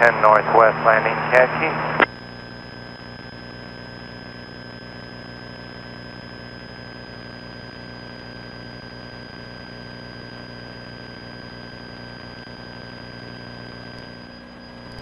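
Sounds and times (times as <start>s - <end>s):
thin high whine: 12.2s - 15.0s.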